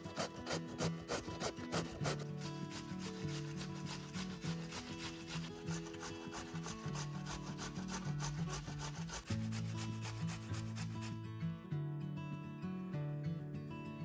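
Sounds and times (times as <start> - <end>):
potato grated on metal grater: 0.0 - 11.2.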